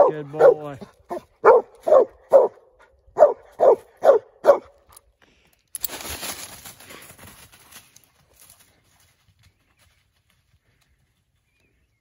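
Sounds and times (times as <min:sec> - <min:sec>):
dog barking: 0:00.0 - 0:04.7
dry leaves crunching underfoot: 0:05.8 - 0:09.2.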